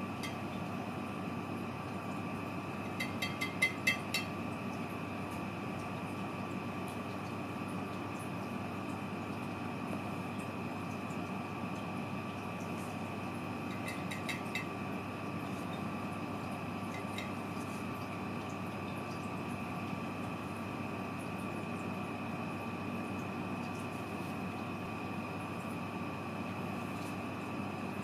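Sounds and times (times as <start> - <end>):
faint high hum: 0.0 - 28.0.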